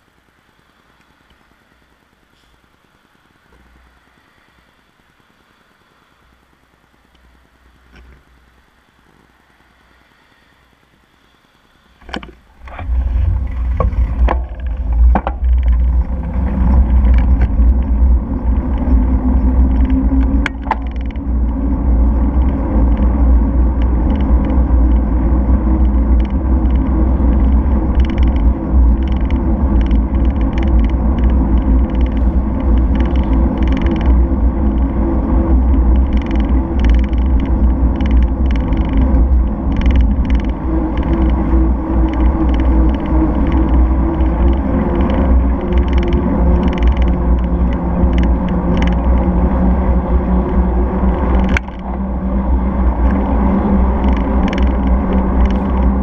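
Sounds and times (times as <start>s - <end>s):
road noise: 0.0s - 56.0s
bicycle clicks: 12.0s - 56.0s
wind buffeting microphone: 12.0s - 56.0s.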